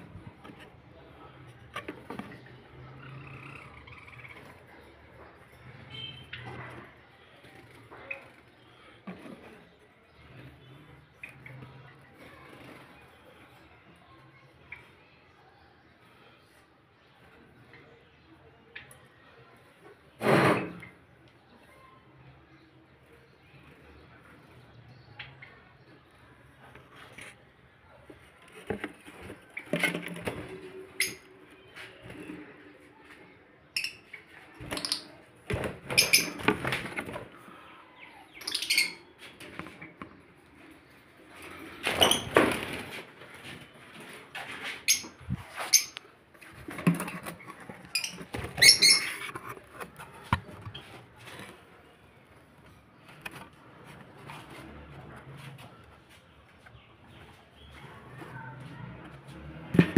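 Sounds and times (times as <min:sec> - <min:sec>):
lovebirds chirping: 0:23.2 - 0:42.4, 0:43.9 - 0:53.2.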